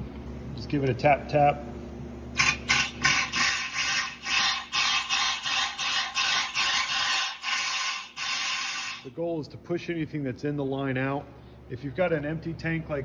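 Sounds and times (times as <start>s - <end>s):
compressed air blow gun blasts: 2.4s - 9.1s.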